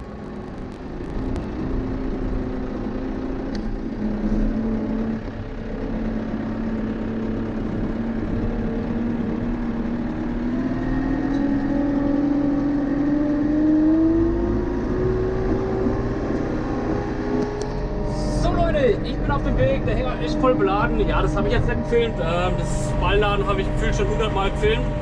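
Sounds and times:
tractor diesel engine revving: 0.0 - 25.0.

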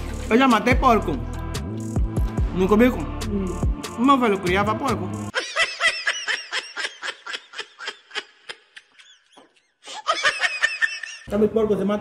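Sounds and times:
high-pitched squeaky laughter: 5.3 - 11.3.

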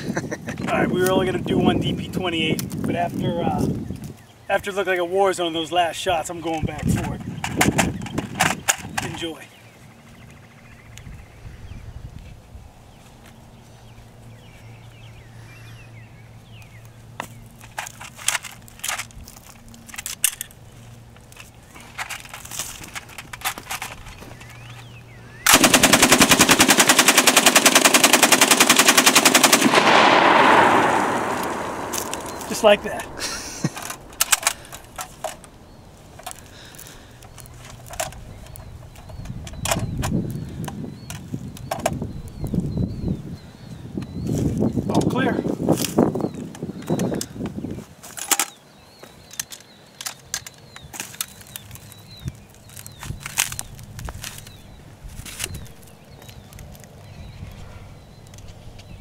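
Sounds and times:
gun metal clicks and knocks: 17.2 - 20.6, 21.2 - 24.9, 33.0 - 42.0, 48.1 - 48.6, 49.3 - 54.6
machine gun firing full auto: 25.5 - 32.7.

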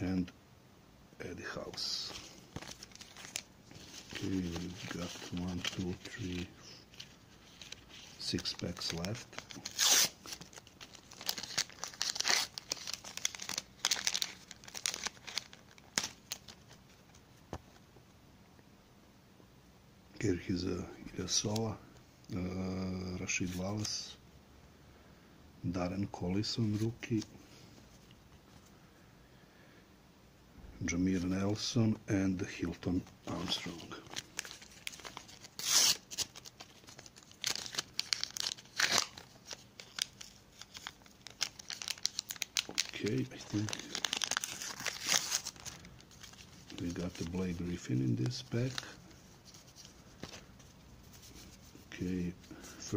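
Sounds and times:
stickers rustling: 1.7 - 16.7, 32.9 - 51.8
wrapper crinkling and tearing: 1.8 - 17.2, 33.0 - 51.8.

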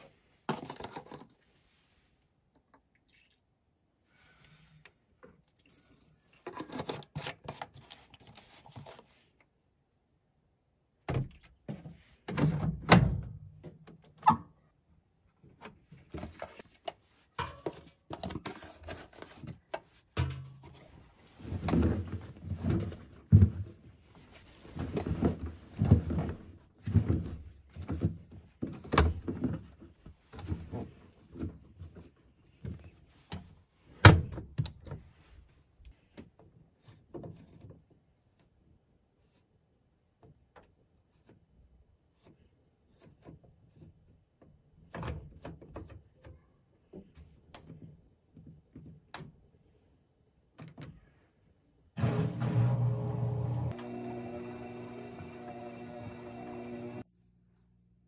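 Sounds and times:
clothes rustling and knocking: 20.7 - 33.6.

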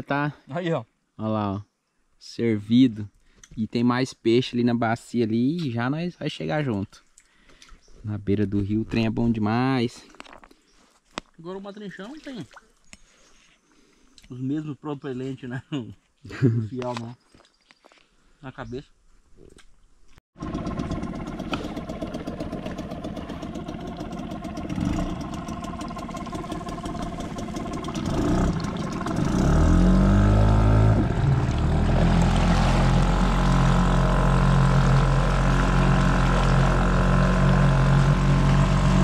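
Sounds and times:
small outboard motor running: 20.4 - 39.0.

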